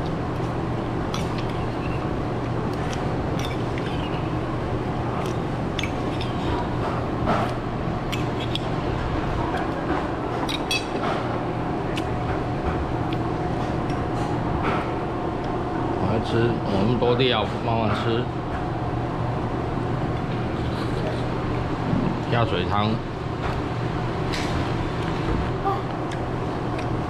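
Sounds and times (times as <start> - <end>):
utensils clinking against bowls: 5.2 - 6.6, 10.4 - 11.2.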